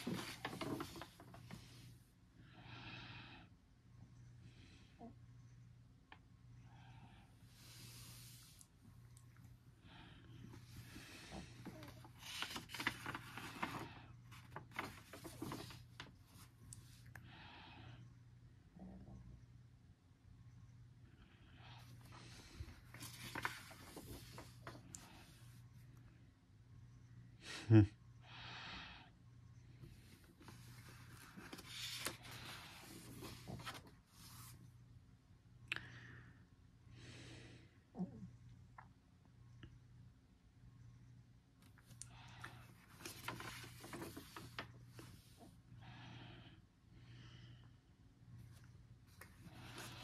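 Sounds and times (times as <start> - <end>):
paper page turning: 0.0 - 1.4, 11.6 - 16.5, 22.9 - 24.8, 30.4 - 34.6, 42.8 - 45.4.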